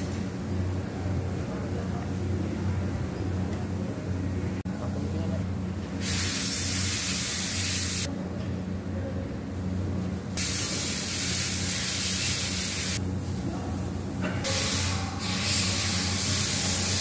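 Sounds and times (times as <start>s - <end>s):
steady hiss: 10.4s - 13.0s.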